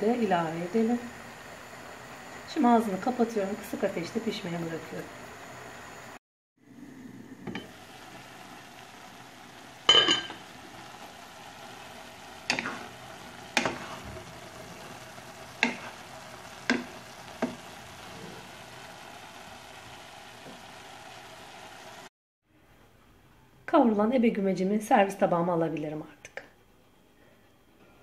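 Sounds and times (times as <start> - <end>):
greens sizzling in a pot: 0.0 - 22.1
wooden spatula knocking pot: 15.6 - 15.9.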